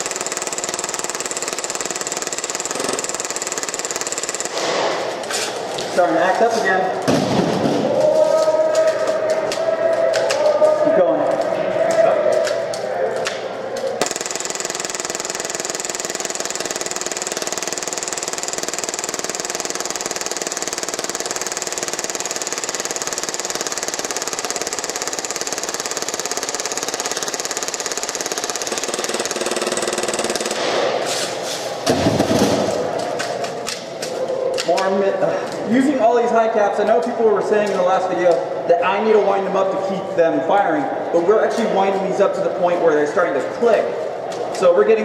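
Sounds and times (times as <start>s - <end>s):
airsoft pistol full auto fire: 0.0s - 5.0s, 14.0s - 30.9s.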